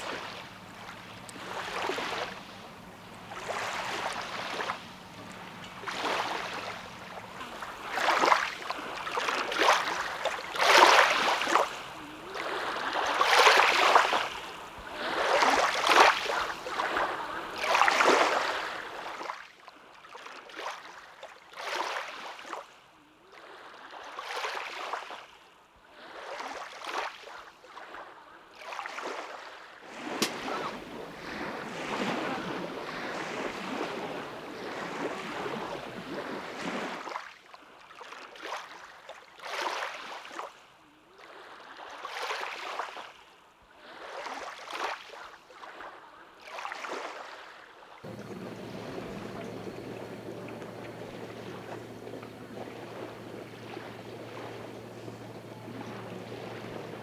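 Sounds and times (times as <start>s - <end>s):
waves washing onto shore: 0.0s - 25.3s, 25.9s - 40.5s, 43.8s - 57.0s
steady rushing noise: 48.1s - 57.0s.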